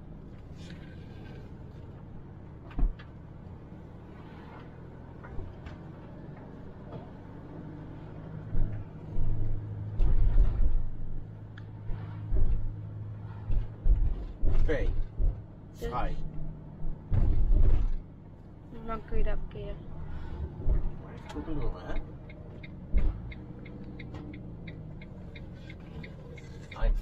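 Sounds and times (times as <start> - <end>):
car engine and road rumble: 0.0 - 27.0
low thud: 16.8 - 18.0.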